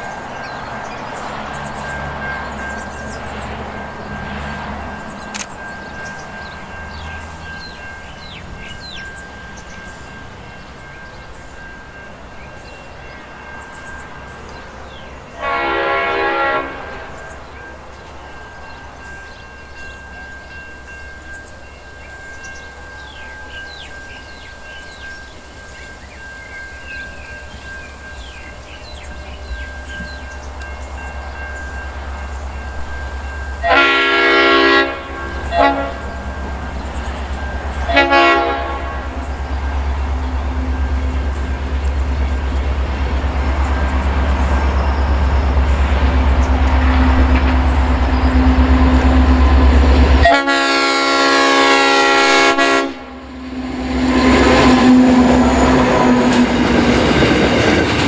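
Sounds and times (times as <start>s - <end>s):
birds chirping: 0.0s - 50.2s
locomotive engine rumble: 0.0s - 58.0s
locomotive horn blasts: 15.3s - 17.3s, 33.6s - 36.6s, 37.8s - 39.3s, 46.6s - 56.4s.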